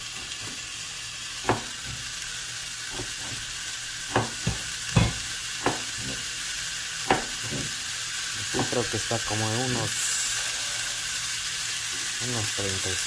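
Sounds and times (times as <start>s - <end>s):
steak sizzling in grill pan: 0.0s - 13.0s
sharp fat pops: 1.4s - 2.0s, 4.1s - 6.2s, 7.0s - 7.7s.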